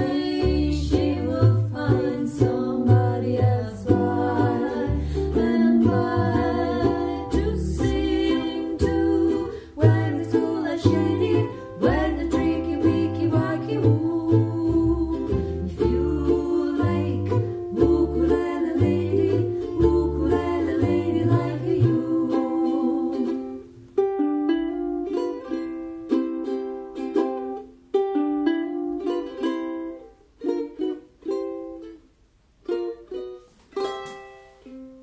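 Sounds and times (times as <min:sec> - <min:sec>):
women singing in harmony: 0:00.0 - 0:23.6
double bass playing: 0:00.0 - 0:30.3
ukulele chords: 0:00.0 - 0:35.0.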